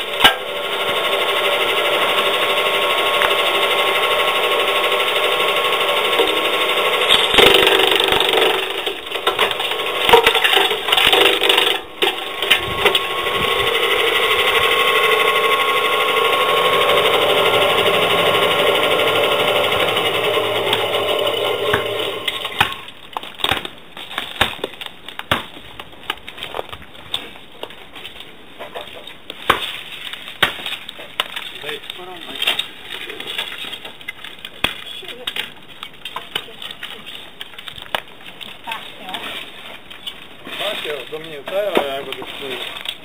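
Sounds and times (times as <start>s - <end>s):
branch chipper running: 0.0s - 23.0s
branch cracking in chipper: 0.1s - 43.0s.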